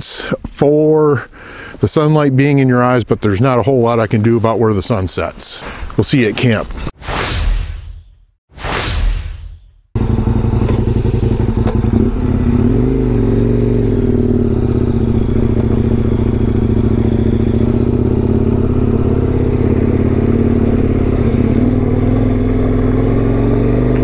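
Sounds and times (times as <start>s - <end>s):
motorcycle engine running: 10.0s - 24.0s.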